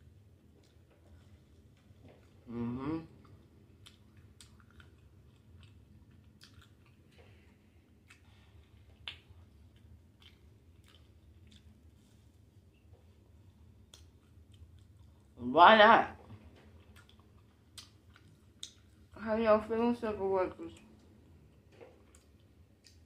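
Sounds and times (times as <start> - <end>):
person chewing food: 0.0 - 15.4, 16.3 - 19.2, 20.8 - 23.0
person humming: 2.5 - 3.1.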